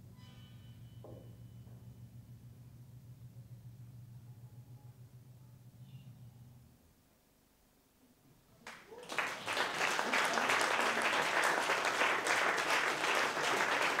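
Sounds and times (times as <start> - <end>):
audience applauding: 8.6 - 14.0.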